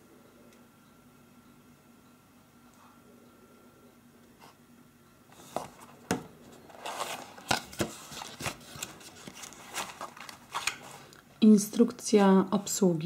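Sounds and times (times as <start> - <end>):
rustling: 5.4 - 11.1.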